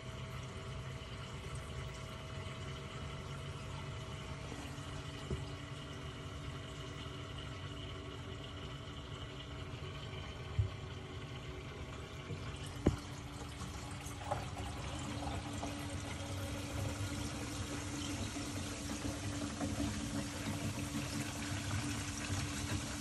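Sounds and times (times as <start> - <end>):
faint steady hum: 0.0 - 23.0
water pouring and splashing: 11.8 - 23.0.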